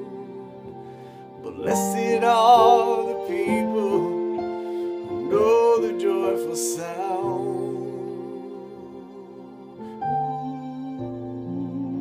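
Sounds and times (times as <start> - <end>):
keyboard chords: 0.0 - 12.0
man singing with vibrato: 1.4 - 9.4.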